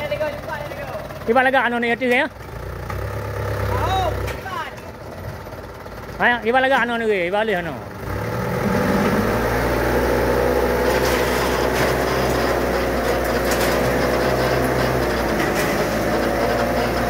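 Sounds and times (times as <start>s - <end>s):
dump truck engine under load: 0.0s - 17.0s
soil and gravel sliding out: 10.6s - 17.0s.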